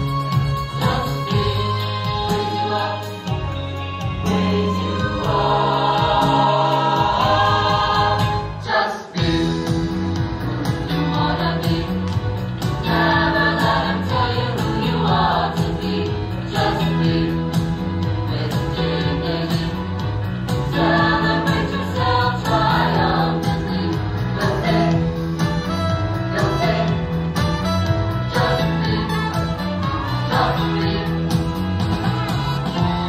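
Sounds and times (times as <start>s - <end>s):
choir singing in harmony: 0.6s - 33.0s.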